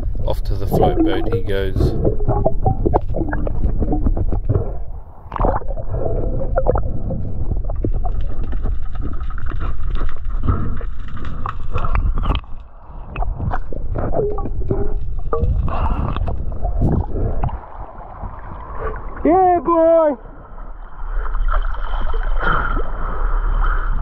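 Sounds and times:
underwater rumbling and gurgling: 0:00.0 - 0:24.0.

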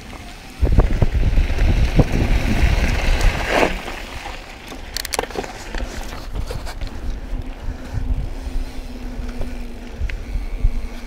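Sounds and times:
bike rattling over dirt trail: 0:00.0 - 0:11.0
wind buffeting microphone: 0:00.5 - 0:04.3, 0:05.5 - 0:11.0.

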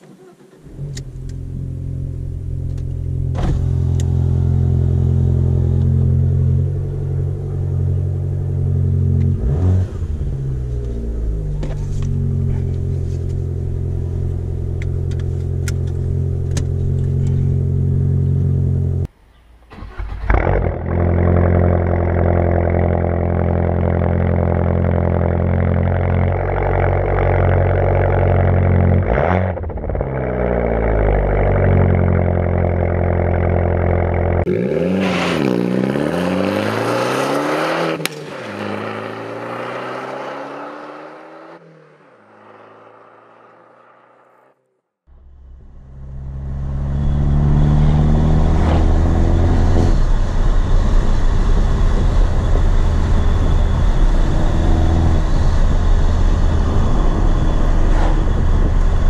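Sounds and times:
car engine idling: 0:00.0 - 0:09.4, 0:10.0 - 0:19.1
car engine starting: 0:00.0 - 0:59.0
engine throttle blips: 0:45.1 - 0:59.0.

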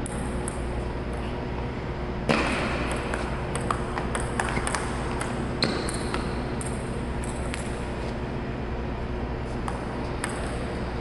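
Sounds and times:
ping pong ball clicking: 0:00.0 - 0:00.7, 0:02.8 - 0:07.7, 0:09.6 - 0:10.6
steady low hum: 0:00.0 - 0:11.0.

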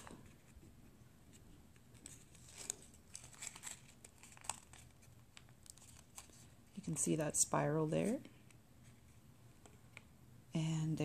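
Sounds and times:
paper crinkling and rustling: 0:00.0 - 0:07.2.

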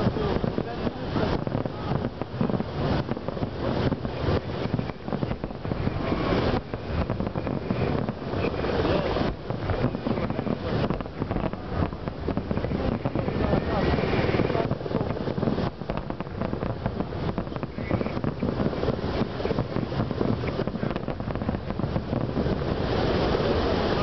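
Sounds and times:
fireworks bursting: 0:00.0 - 0:24.0.

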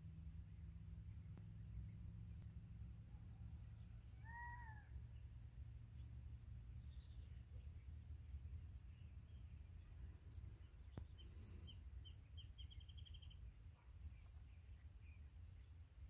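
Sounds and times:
distant birds chirping: 0:00.0 - 0:16.0
low steady rumble: 0:00.0 - 0:16.0.

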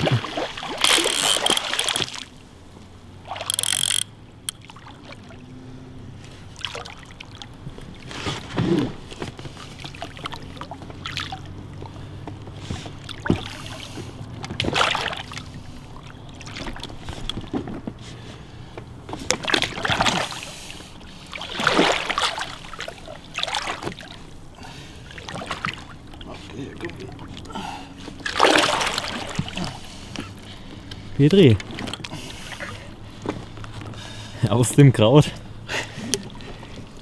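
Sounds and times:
fish splashing in water: 0:00.0 - 0:02.4, 0:03.2 - 0:05.6, 0:06.3 - 0:17.2, 0:19.2 - 0:30.1.

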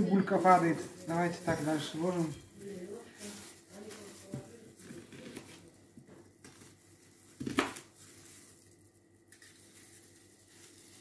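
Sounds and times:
faint kitchen handling sounds: 0:00.0 - 0:06.6.

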